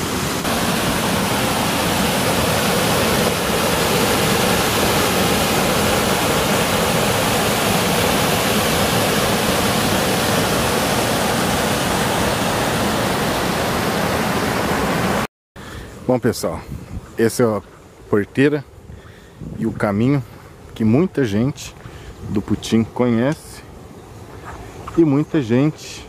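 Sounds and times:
water rushing and splashing: 0.0 - 15.3.

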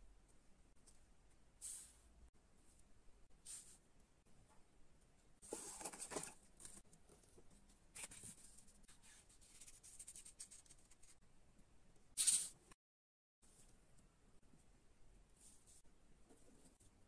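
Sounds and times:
cardboard and paper rustling: 5.4 - 7.3.

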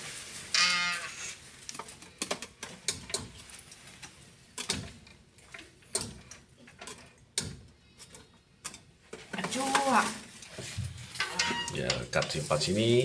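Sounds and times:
sharp clicks and knocks: 1.7 - 9.9.

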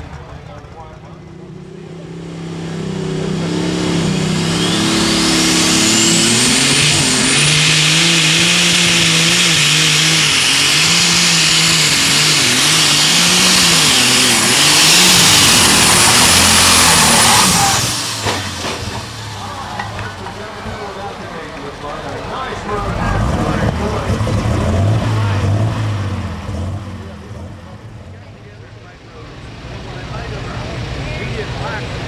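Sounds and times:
tractor engine at full power: 0.0 - 32.0
high turbo whistle: 3.4 - 18.2.

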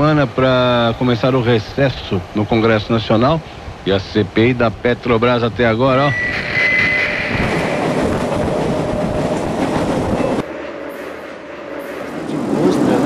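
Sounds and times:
approaching train: 0.0 - 13.0
train wheels clattering on track: 6.3 - 13.0.

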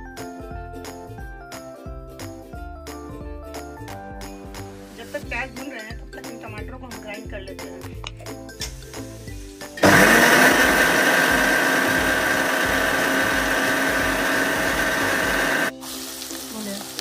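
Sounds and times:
mixer grinder motor whining: 9.8 - 15.7.

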